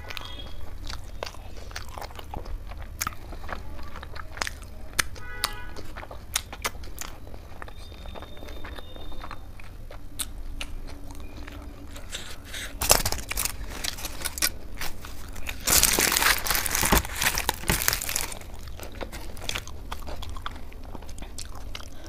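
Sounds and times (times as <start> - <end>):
chewing food: 0.0 - 22.0
flatbread rustling and tearing: 11.9 - 21.3.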